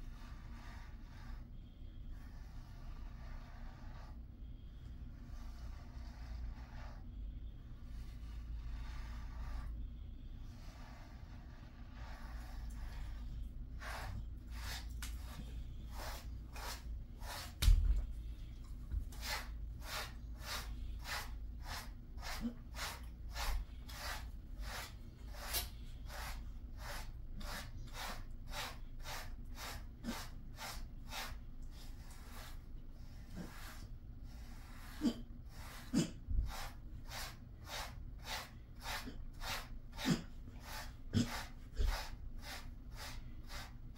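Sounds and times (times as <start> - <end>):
brush swishing through dog fur: 13.8 - 43.9.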